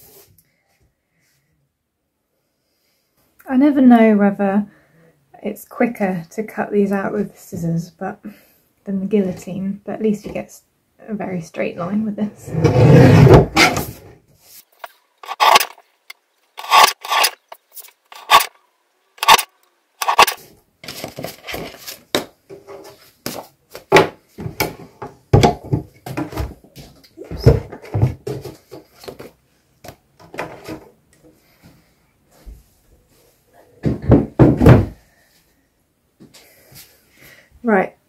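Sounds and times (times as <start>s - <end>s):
paper sheets scraping and knocking: 12.5s - 15.8s, 19.2s - 23.4s
paper guillotine cutting strokes: 14.8s - 15.8s, 16.6s - 18.5s, 19.2s - 20.4s.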